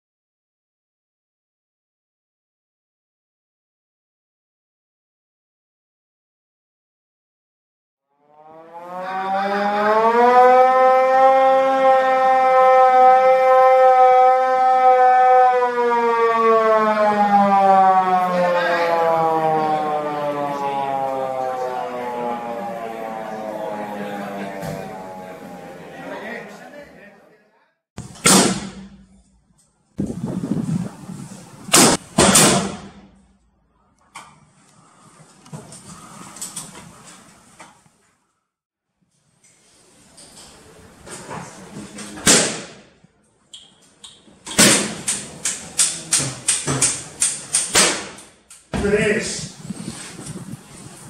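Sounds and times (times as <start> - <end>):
siren wailing: 8.1 - 26.8
black-powder gunshots: 28.2 - 29.0, 31.8 - 33.1, 42.2 - 42.8.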